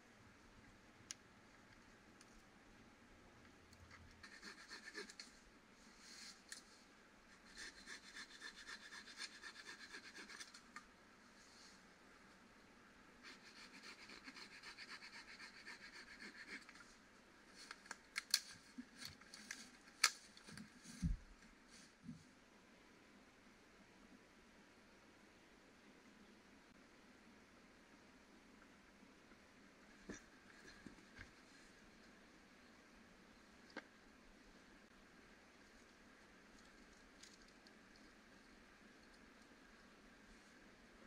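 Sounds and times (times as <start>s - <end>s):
dry sticks snapping: 18.1s - 20.2s.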